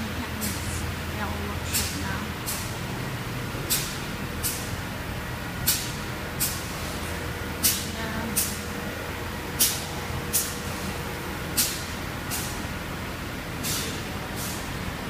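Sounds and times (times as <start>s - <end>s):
factory workshop hum: 0.0s - 15.0s
short sharp air hisses: 13.6s - 14.7s.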